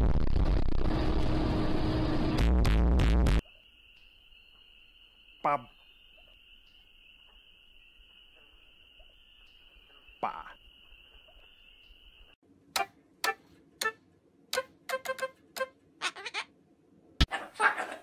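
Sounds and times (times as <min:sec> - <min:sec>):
toy keyboard notes: 0:12.8 - 0:15.7.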